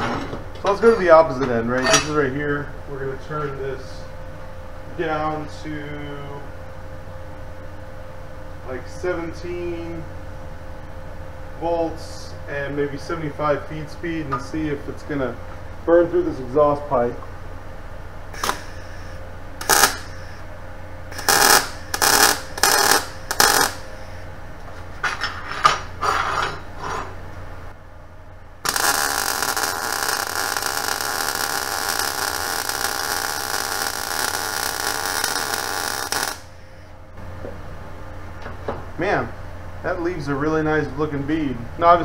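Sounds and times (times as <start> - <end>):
welding arc sizzling: 18.3 - 24.4, 28.6 - 36.9.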